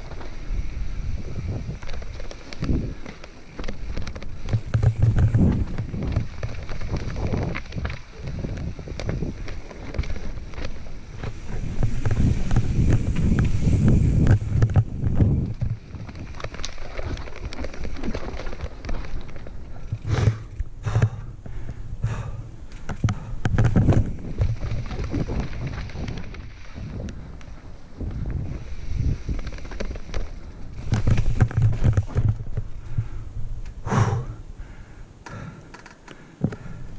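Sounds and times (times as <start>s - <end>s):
bike clattering over rocks: 0.0s - 33.1s
bike tyres crunching over stones: 0.0s - 36.9s.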